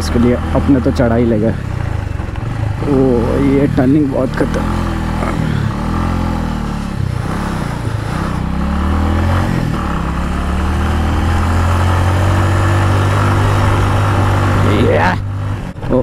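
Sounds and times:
motorcycle engine climbing hill: 0.0s - 16.0s.

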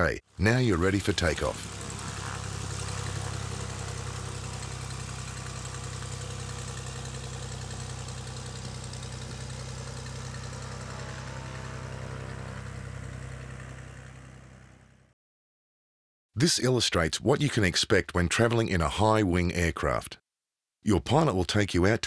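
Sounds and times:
propeller aircraft engine droning: 0.3s - 15.1s.

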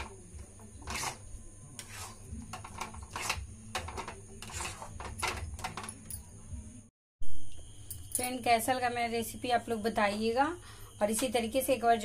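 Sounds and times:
steel spoon scraping a pan: 0.0s - 5.9s.

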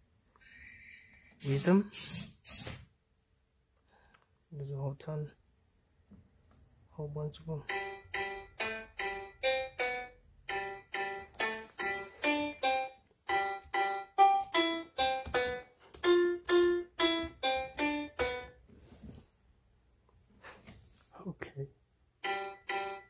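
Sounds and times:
toy playing electronic piano tune: 7.6s - 18.6s, 22.2s - 23.0s.

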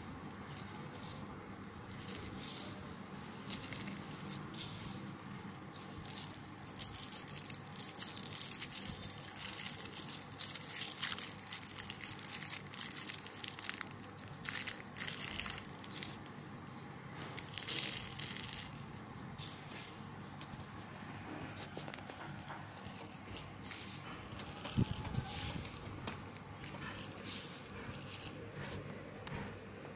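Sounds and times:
fingers crunching powder on plastic: 0.4s - 5.0s, 5.6s - 19.0s
wrapper crinkling: 5.8s - 16.7s, 17.3s - 19.0s.

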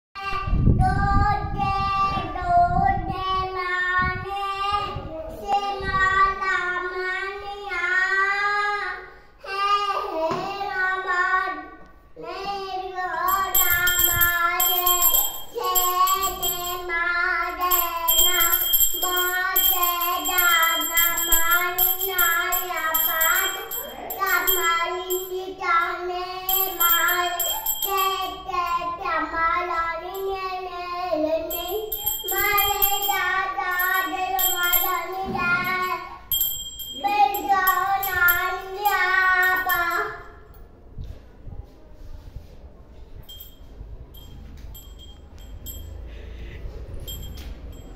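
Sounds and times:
child singing: 0.2s - 36.3s, 37.0s - 40.4s
small bell ringing: 13.1s - 29.0s, 29.7s - 30.6s, 31.2s - 40.6s, 43.2s - 47.9s.

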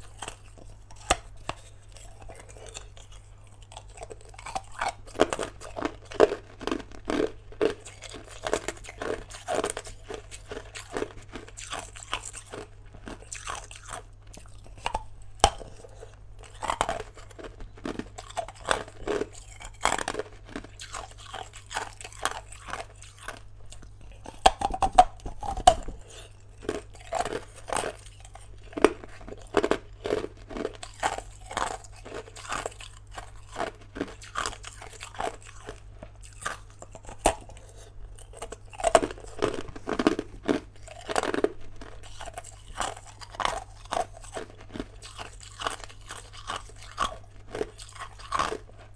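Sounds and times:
person crunching ice: 3.7s - 23.4s, 24.2s - 48.7s.

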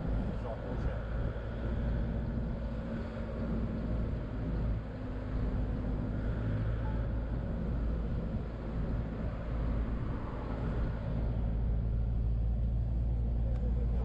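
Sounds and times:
car engine hum: 0.0s - 14.0s
road and tyre rumble: 0.0s - 14.0s.

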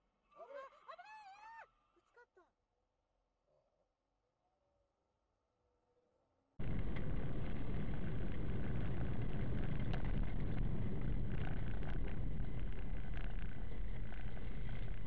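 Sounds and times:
car engine and road noise: 6.6s - 15.0s.

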